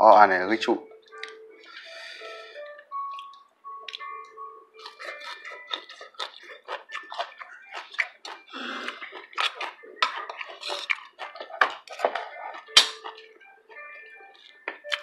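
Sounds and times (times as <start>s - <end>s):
chewing and lip-smacking: 1.1s - 1.9s, 3.0s - 15.0s
spoon clinking against bowls: 9.0s - 13.3s.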